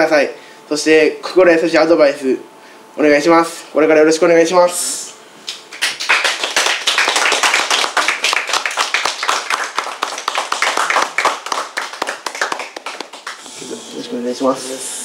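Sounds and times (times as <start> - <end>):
people clapping: 5.5 - 13.5.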